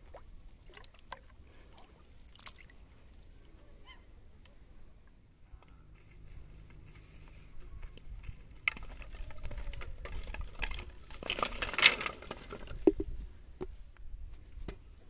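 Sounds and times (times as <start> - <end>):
rustling with light clicks: 5.6 - 13.1
clatter of poles and plastic bottles: 6.0 - 13.2.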